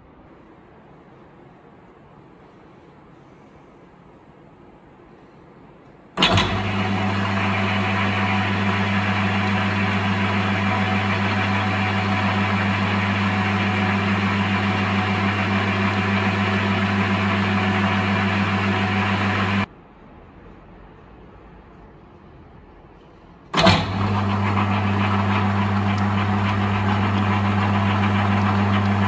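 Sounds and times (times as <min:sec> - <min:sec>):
metal lathe motor humming: 0:06.2 - 0:19.7, 0:23.6 - 0:29.0.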